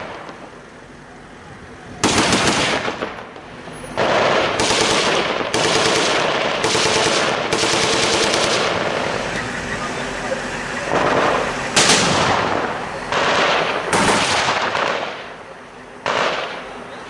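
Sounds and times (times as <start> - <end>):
machine-gun bursts: 2.0 - 3.0, 4.0 - 8.8.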